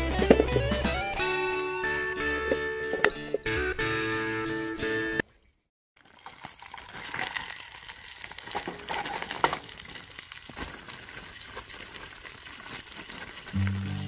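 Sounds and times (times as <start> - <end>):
food sizzling in a pan: 5.4 - 14.0.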